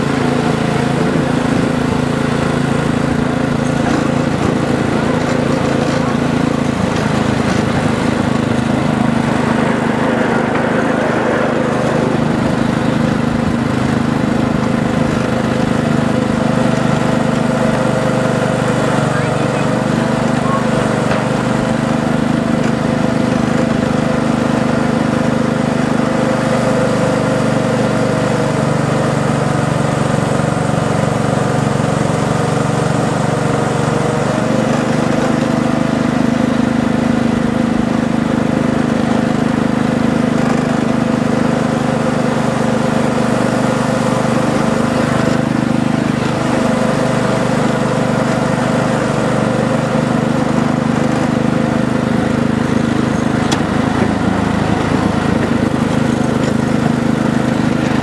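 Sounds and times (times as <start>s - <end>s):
humming drone: 0.0s - 24.7s.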